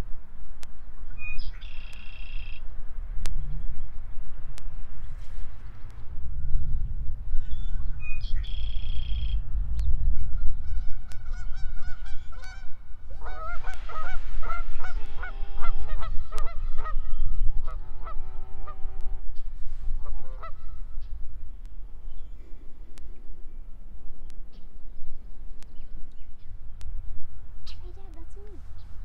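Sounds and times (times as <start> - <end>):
wind rumbling on microphone: 0.0 - 29.0
geese honking: 10.6 - 19.3, 19.9 - 21.0.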